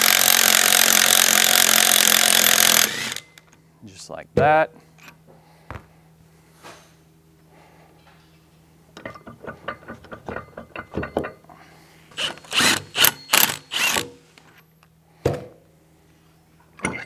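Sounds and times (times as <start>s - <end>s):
cordless power tool bursts: 0.0s - 3.4s, 12.2s - 14.1s.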